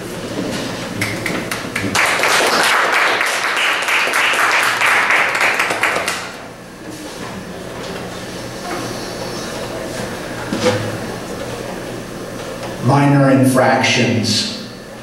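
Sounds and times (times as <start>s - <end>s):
audience clapping: 1.0s - 6.5s.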